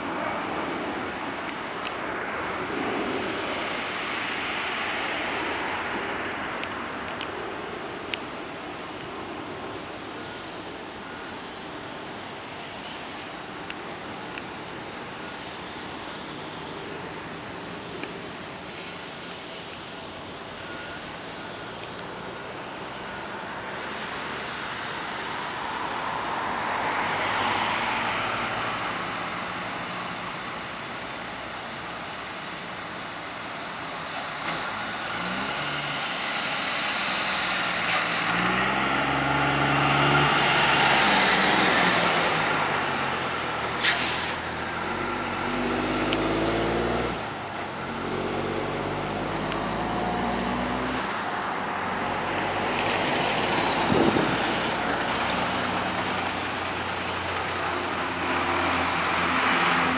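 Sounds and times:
short air hiss: 43.8 - 44.5.

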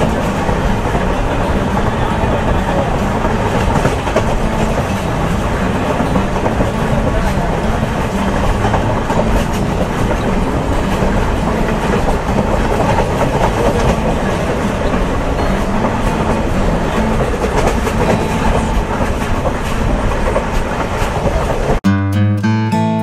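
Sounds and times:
train wheels rumbling and rattling: 0.0 - 21.8.

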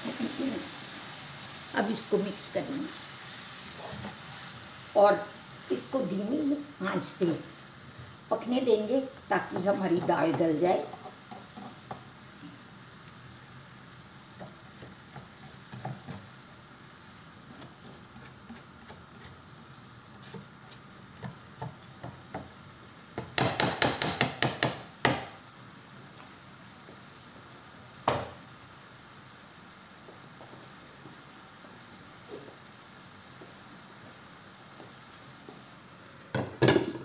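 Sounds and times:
knock: 28.0 - 28.4.

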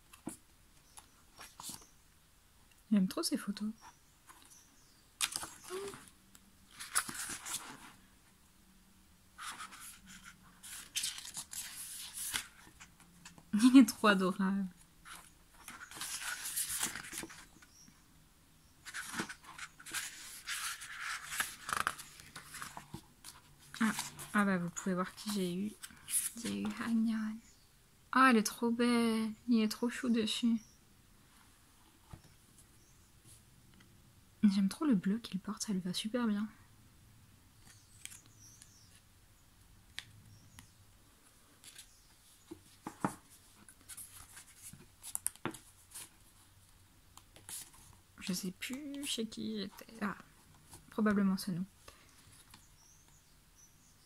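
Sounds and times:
pages rustling and flapping: 0.1 - 1.9, 5.2 - 8.0, 9.4 - 13.7, 15.0 - 17.7, 18.8 - 24.5, 41.6 - 46.2.

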